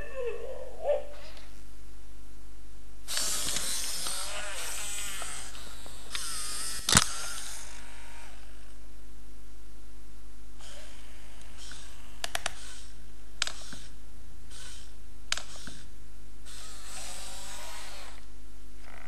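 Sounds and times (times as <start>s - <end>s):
steady low hum: 0.0s - 19.0s
sharp mechanical click: 3.1s - 7.6s, 11.6s - 15.9s
robot servo motors whirring: 3.1s - 8.8s, 10.6s - 15.9s, 16.5s - 18.3s.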